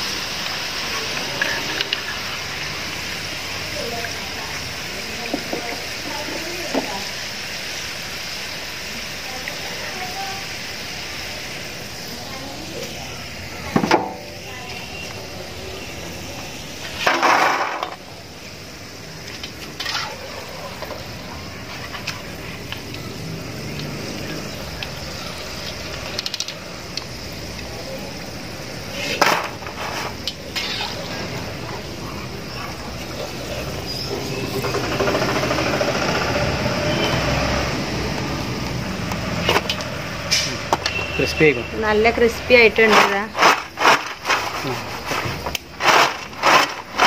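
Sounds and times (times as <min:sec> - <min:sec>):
fries sizzling in hot oil: 0:00.0 - 0:47.0.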